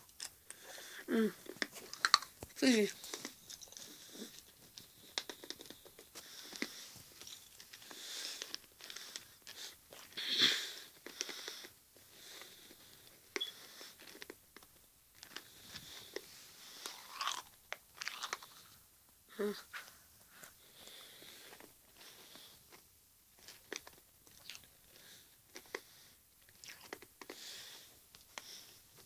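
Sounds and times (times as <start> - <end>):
chewing crunchy sweets: 0.0 - 18.9, 19.6 - 28.8.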